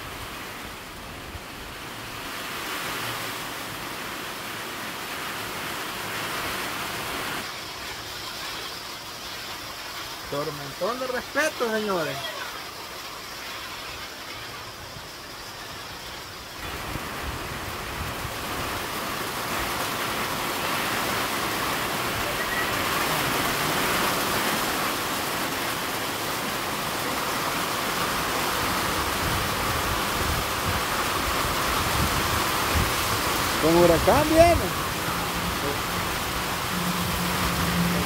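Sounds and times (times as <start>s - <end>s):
rain and wind in trees: 0.0s - 38.0s.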